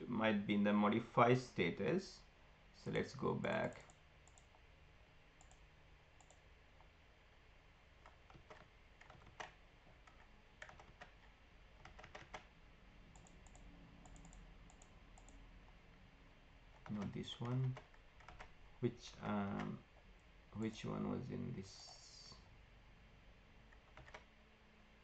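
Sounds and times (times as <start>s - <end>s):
computer mouse and keyboard clicks: 5.4s - 5.6s, 8.0s - 12.5s, 13.1s - 15.4s, 16.7s - 18.5s, 23.7s - 24.3s.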